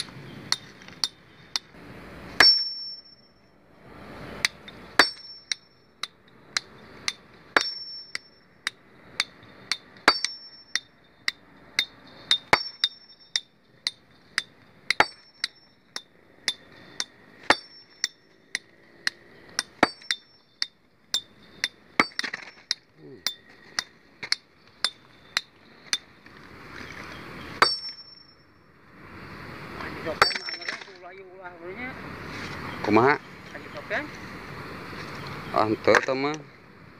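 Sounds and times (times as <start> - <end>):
hammer striking stone: 2.4 - 3.1, 4.4 - 26.1, 27.6 - 28.3, 30.2 - 31.0.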